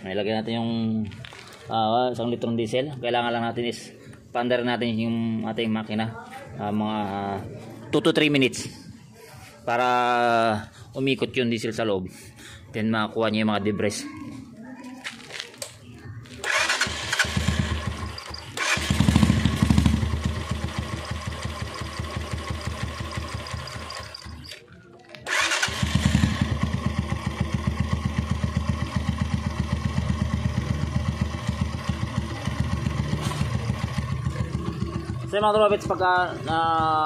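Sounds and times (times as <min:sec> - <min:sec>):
motorcycle engine idling: 0:16.5 - 0:24.5, 0:25.3 - 0:37.0.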